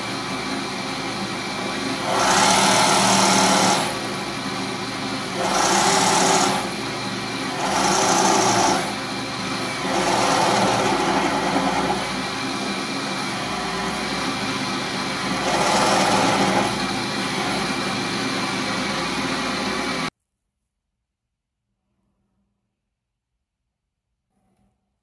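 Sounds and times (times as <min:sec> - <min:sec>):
electric motor driving belt rig: 0:00.0 - 0:20.1.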